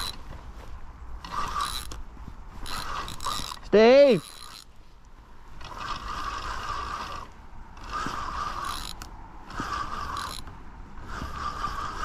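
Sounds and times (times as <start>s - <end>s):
fishing reel ratchet clicking: 0.0s - 0.2s, 1.3s - 2.0s, 2.6s - 4.7s, 5.6s - 10.5s.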